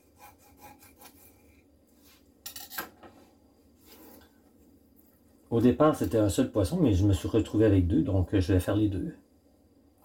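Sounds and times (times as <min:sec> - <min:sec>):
knife scraping fish skin: 0:00.1 - 0:01.5
knife clattering: 0:02.4 - 0:02.9.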